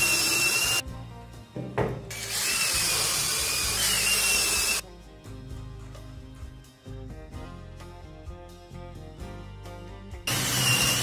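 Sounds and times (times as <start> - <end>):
cordless drill driving screw: 0.0 - 0.8, 2.1 - 4.8, 10.3 - 11.0.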